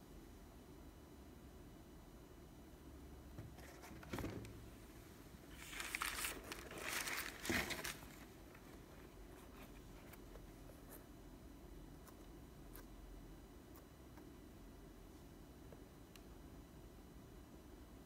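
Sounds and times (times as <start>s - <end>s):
tissue paper crinkling: 5.5s - 10.2s.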